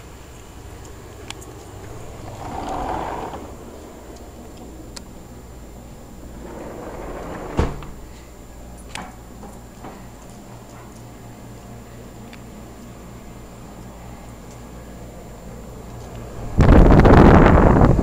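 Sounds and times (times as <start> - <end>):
screen door banging shut: 2.1 - 3.8, 6.3 - 8.1.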